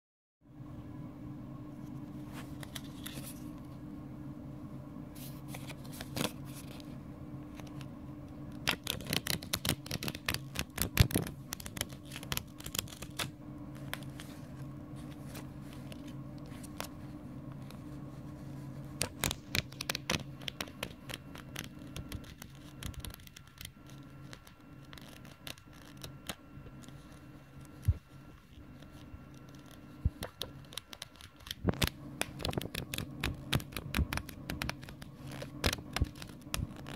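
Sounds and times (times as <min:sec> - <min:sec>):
steady low hum: 0:00.4 - 0:36.9
paper pages flicking: 0:02.4 - 0:03.5, 0:05.2 - 0:06.9, 0:08.5 - 0:14.4, 0:19.0 - 0:28.0, 0:28.8 - 0:36.9.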